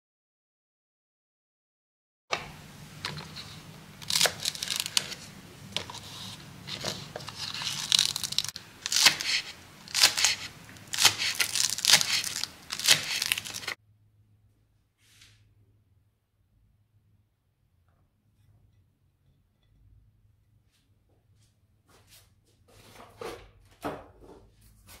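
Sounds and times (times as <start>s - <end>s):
knife slicing on cutting board: 5.8s - 13.8s.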